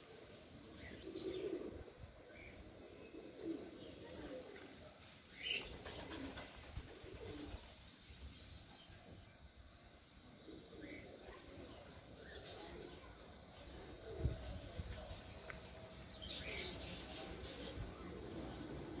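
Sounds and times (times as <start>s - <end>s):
low bird coos: 0.0s - 7.7s, 10.4s - 15.1s, 16.2s - 19.0s.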